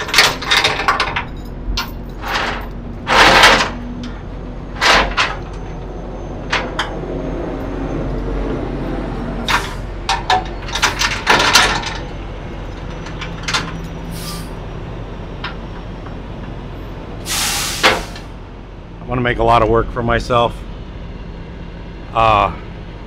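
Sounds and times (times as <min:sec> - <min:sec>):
chain clanking on metal rail: 0:00.0 - 0:07.0, 0:09.4 - 0:14.5
steady vehicle hum: 0:00.0 - 0:23.0.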